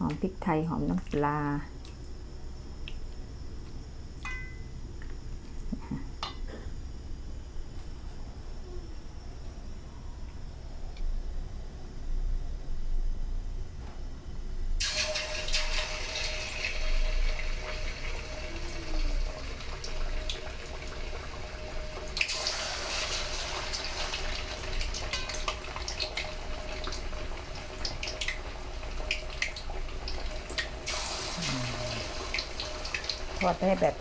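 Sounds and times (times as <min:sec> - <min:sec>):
meat sizzling in hot oil: 0:14.8 - 0:34.0
oil crackling and popping: 0:14.8 - 0:34.0.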